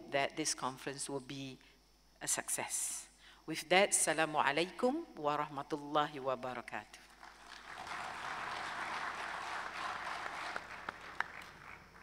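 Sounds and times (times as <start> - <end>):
audience applauding: 7.2 - 12.0.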